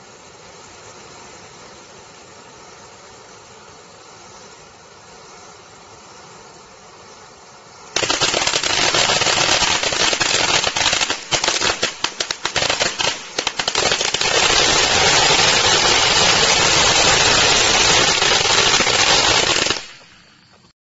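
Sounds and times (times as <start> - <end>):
firework fountain hissing and crackling: 0.0 - 20.7
firework sharp pops: 7.9 - 20.7.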